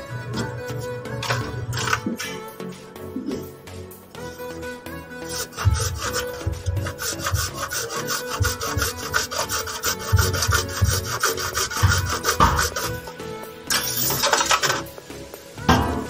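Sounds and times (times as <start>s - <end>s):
hacksaw cutting plastic pipe: 0.2s - 2.5s, 5.2s - 15.0s.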